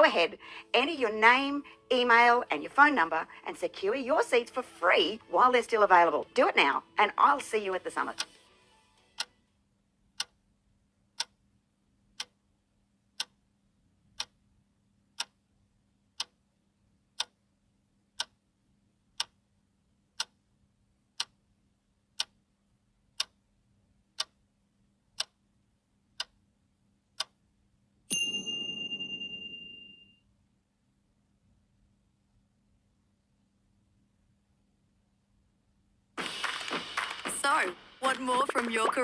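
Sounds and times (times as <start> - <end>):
clock ticking: 0.0 - 8.4, 9.1 - 9.4, 10.1 - 10.5, 11.1 - 11.5, 12.1 - 14.4, 15.1 - 15.5, 16.1 - 16.4, 17.1 - 17.4, 18.1 - 18.5, 19.1 - 19.4, 20.1 - 20.5, 21.1 - 21.5, 22.1 - 22.5, 23.1 - 24.4, 25.1 - 25.4, 26.0 - 26.4, 27.0 - 27.4, 36.2 - 39.0
bright ringing chime: 28.1 - 30.2.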